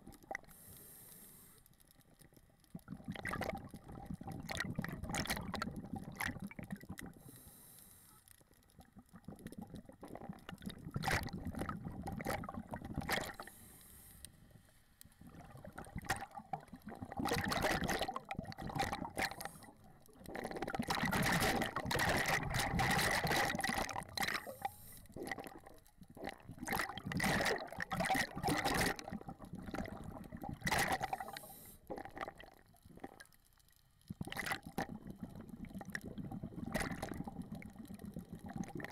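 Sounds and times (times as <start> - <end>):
water bubbling and rushing: 15.2 - 25.6, 26.2 - 31.4.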